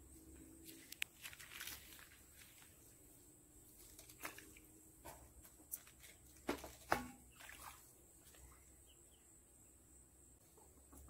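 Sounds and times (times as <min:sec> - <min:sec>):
small water splashes and drips: 0:03.9 - 0:04.8, 0:05.7 - 0:08.7.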